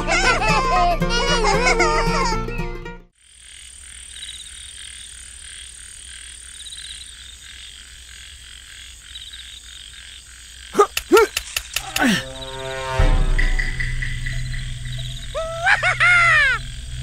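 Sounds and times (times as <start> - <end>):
frogs croaking: 3.2 - 12.8, 13.4 - 17.0
loud swooping calls: 13.6 - 17.0.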